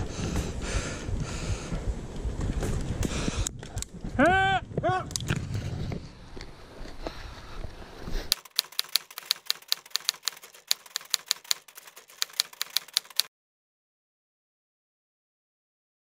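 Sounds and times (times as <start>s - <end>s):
rumbling outdoor noise: 0.0s - 8.4s
typewriter key clicks: 8.3s - 13.3s.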